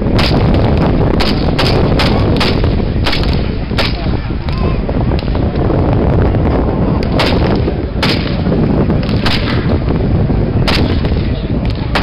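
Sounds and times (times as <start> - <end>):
low background rumble: 0.0 - 12.0
rifle shots: 0.2 - 4.0, 7.1 - 9.8, 10.6 - 11.3.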